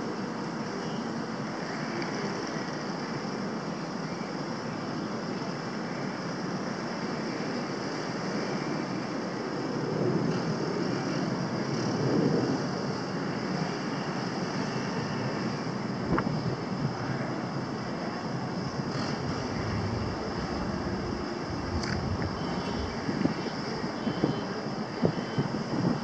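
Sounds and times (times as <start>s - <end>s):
wind on microphone: 18.3s - 26.0s
ship machinery rushing: 18.7s - 23.4s.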